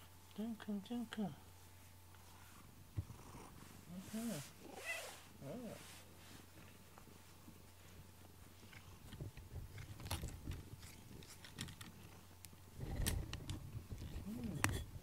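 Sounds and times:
cat purring: 0:02.2 - 0:06.0
cat licking and nibbling: 0:08.6 - 0:12.2.

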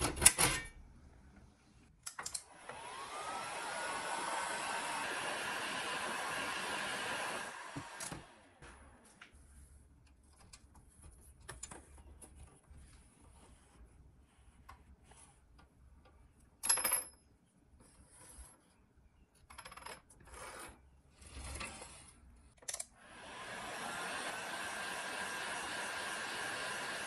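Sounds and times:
heat gun blower hiss: 0:23.2 - 0:27.0.

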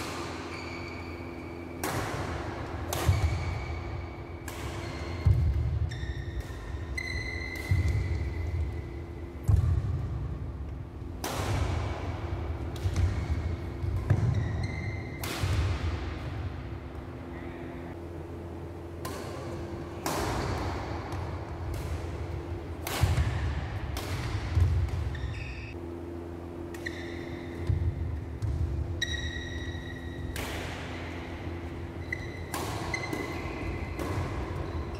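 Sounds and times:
racket striking shuttlecock: 0:00.0 - 0:10.4, 0:11.1 - 0:17.1, 0:18.9 - 0:25.6, 0:26.6 - 0:34.9
shoes squeaking on court: 0:00.3 - 0:01.8, 0:03.1 - 0:09.2, 0:13.0 - 0:15.2, 0:24.6 - 0:25.8, 0:26.8 - 0:30.3, 0:31.2 - 0:34.9.

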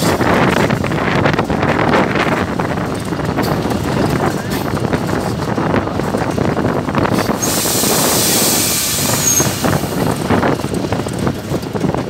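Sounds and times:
diesel locomotive running: 0:00.0 - 0:12.0
wind rushing over microphone: 0:00.0 - 0:12.0
strong air hiss: 0:07.2 - 0:09.9.

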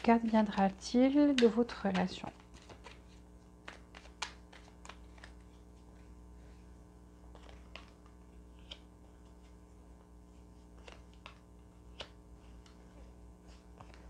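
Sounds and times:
cards being shuffled: 0:00.0 - 0:06.5, 0:07.2 - 0:14.0
faint steady hum: 0:00.0 - 0:14.0.

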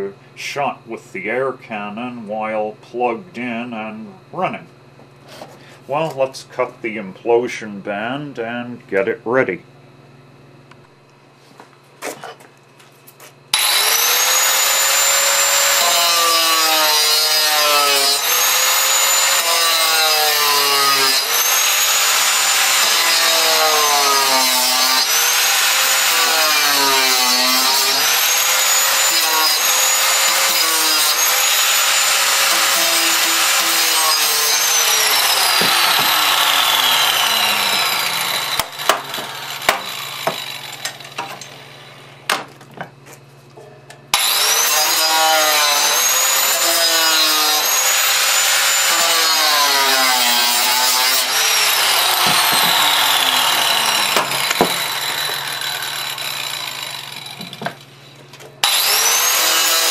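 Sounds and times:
angle grinder cutting metal: 0:13.6 - 0:42.0, 0:44.1 - 0:57.8, 0:58.6 - 0:59.9
knocks: 0:52.2 - 0:52.8.

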